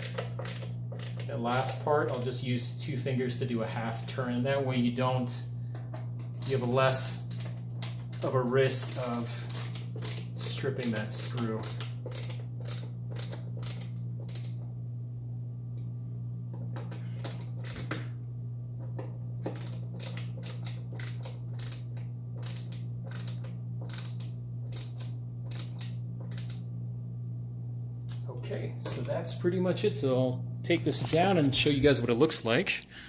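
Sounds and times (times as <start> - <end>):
screwdriver clicking: 19.4 - 26.6.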